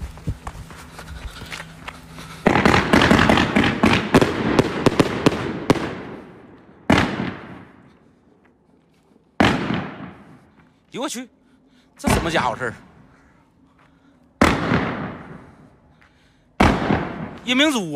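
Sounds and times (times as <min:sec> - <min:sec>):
firework bangs and crackling: 0:02.4 - 0:07.9, 0:09.4 - 0:10.4, 0:14.4 - 0:15.5, 0:16.6 - 0:17.6.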